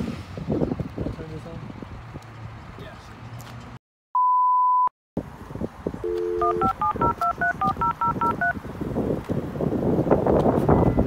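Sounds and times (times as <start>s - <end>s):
dial tone: 6.1s - 8.6s
steady high beep: 6.1s - 8.6s
touch-tone keypad digits: 6.1s - 8.6s.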